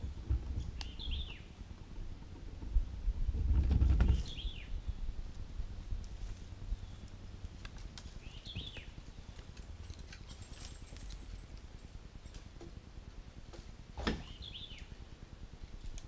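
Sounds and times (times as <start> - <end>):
low background rumble: 0.0 - 16.0
bird chirp: 0.5 - 1.7, 4.0 - 5.2, 6.7 - 7.3, 8.1 - 9.5, 14.2 - 15.0.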